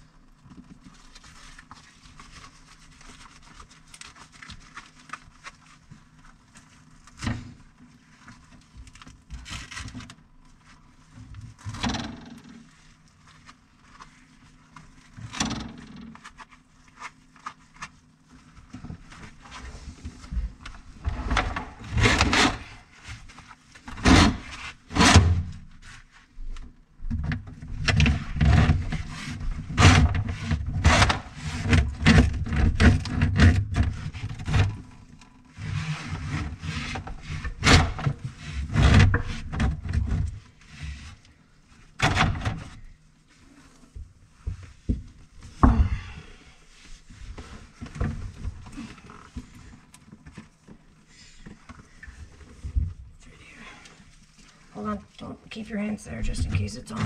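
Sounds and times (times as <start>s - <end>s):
plastic pipes knocking and scraping: 15.2s - 16.4s, 27.1s - 41.2s.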